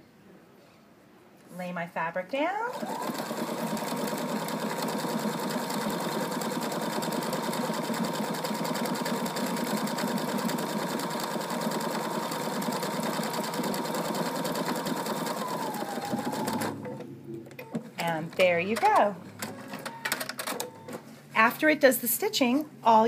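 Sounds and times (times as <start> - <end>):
sewing machine stitching: 2.7 - 17.0.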